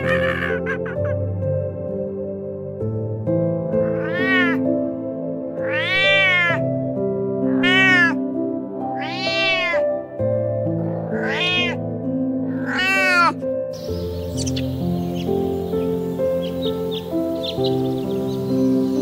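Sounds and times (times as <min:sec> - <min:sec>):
background music: 0:00.0 - 0:19.0
cat meowing: 0:03.8 - 0:04.6, 0:05.6 - 0:06.6, 0:07.4 - 0:08.3, 0:08.9 - 0:09.8, 0:11.0 - 0:11.8, 0:12.4 - 0:13.4.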